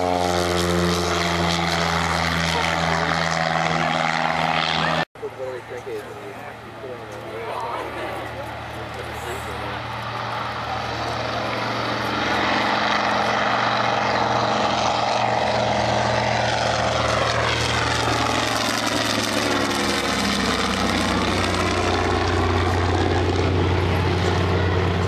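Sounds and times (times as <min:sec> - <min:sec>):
propeller airplane passing overhead: 0:00.0 - 0:25.0.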